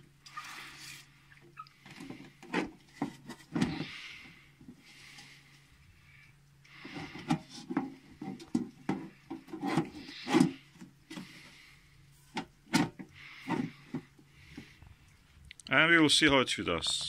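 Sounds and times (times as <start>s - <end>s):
plastic rubbing scrapes: 1.8s - 5.3s, 6.8s - 15.0s.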